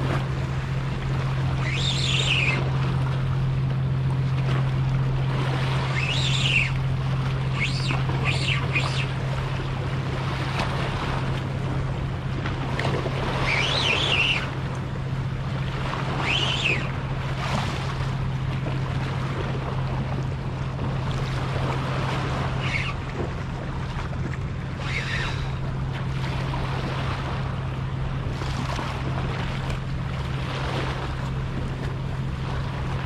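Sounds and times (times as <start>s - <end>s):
steady low hum: 0.0s - 33.0s
short high whines: 1.3s - 3.0s, 5.5s - 9.6s, 13.2s - 14.7s, 15.9s - 17.7s, 22.4s - 23.1s, 24.6s - 25.7s.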